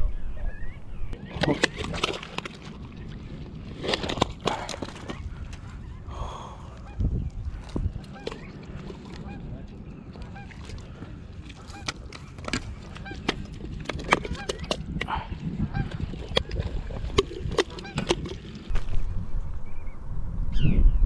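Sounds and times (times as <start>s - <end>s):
birds honking: 8.1s - 13.5s, 17.7s - 18.1s
low rumble: 18.7s - 21.0s.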